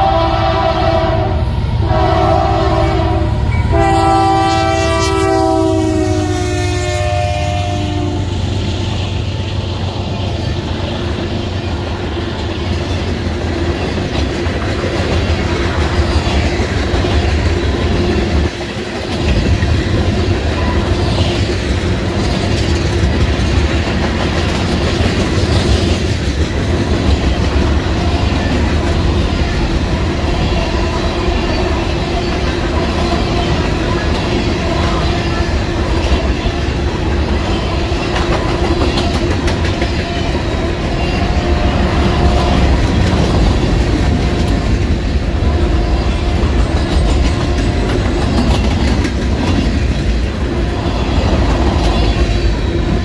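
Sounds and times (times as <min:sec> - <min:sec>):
steel wheels rumbling on rails: 0:00.0 - 0:53.0
wheels clicking over rail joints: 0:12.2 - 0:53.0.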